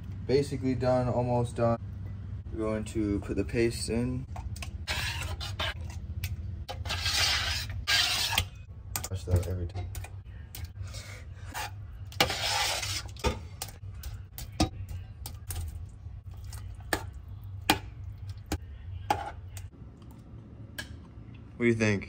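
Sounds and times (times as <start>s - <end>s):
low hum: 0.0s - 4.9s
spoon scraping: 4.6s - 6.0s, 6.7s - 8.6s, 11.5s - 13.3s.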